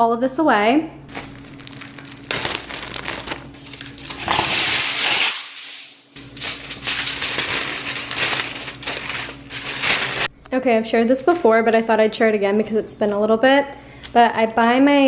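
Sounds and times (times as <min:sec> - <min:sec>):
aluminium foil crinkling: 0:01.1 - 0:10.3
plastic bag rustling: 0:01.1 - 0:10.3.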